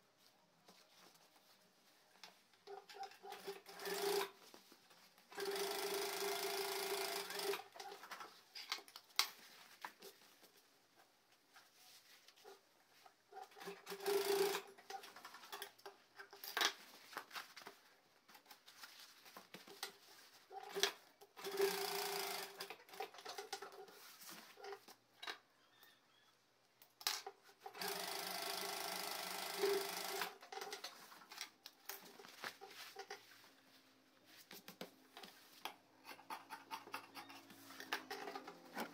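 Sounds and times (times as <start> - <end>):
sewing machine stitching: 2.7 - 4.4, 5.3 - 8.2, 13.4 - 15.3, 20.6 - 23.8, 27.6 - 31.1.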